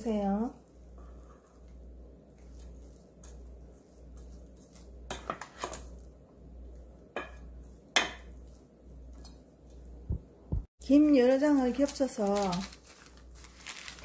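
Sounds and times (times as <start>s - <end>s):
wooden paddle scraping rice in pot: 0.6s - 6.0s.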